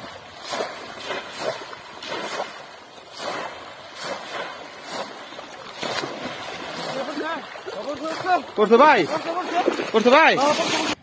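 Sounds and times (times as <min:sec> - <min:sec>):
splashing in shallow water: 0:00.0 - 0:11.0.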